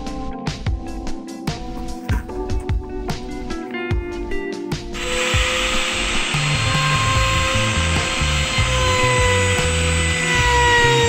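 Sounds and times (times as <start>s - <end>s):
router whining: 5.0s - 11.0s.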